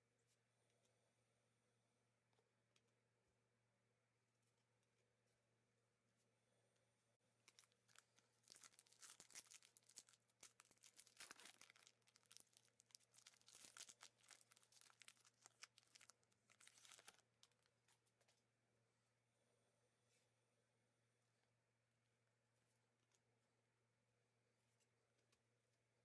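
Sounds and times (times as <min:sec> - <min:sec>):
foil card pack tearing and crinkling: 0:07.5 - 0:17.2.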